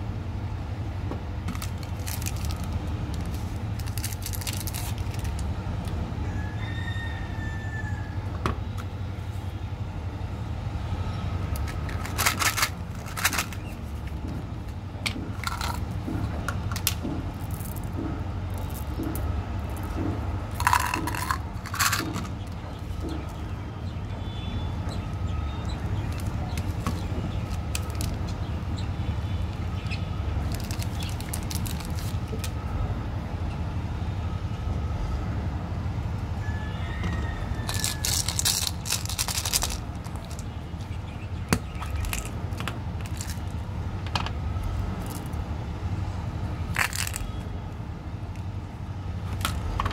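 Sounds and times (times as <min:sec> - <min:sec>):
foil wrapper crinkling: 0:01.5 - 0:05.5, 0:30.4 - 0:32.5, 0:37.6 - 0:40.4.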